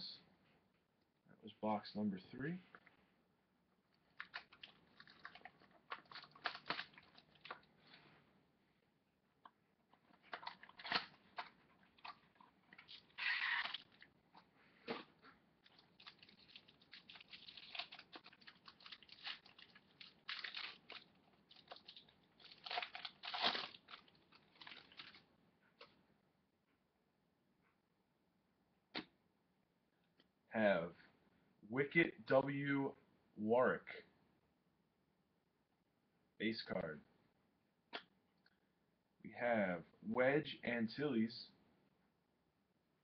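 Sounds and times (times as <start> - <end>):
foil wrapper crinkling: 4.1 - 7.7, 10.1 - 14.1, 14.9 - 25.2.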